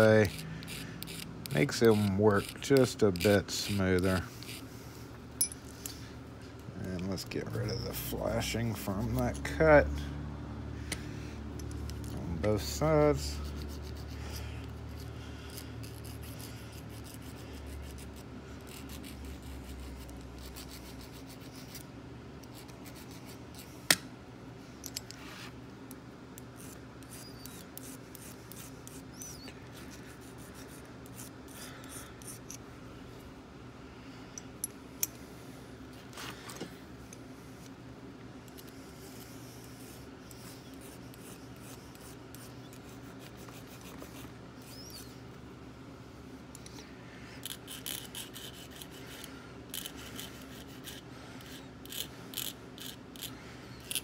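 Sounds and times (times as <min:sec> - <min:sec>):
hand file scraping metal: 0:00.0 - 0:04.7, 0:11.9 - 0:21.8, 0:47.4 - 0:54.0
steady low hum: 0:00.0 - 0:54.0.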